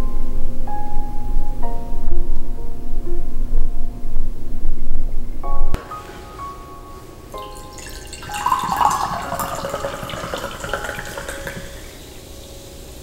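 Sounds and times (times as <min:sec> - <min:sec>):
soda pouring and fizzing: 0:07.4 - 0:12.4.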